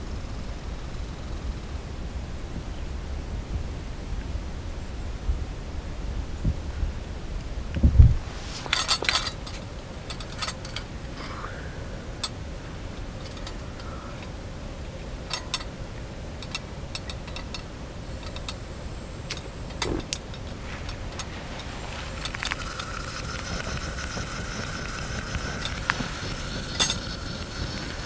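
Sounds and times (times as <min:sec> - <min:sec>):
camp gear clicking and clinking: 0:08.4 - 0:28.0.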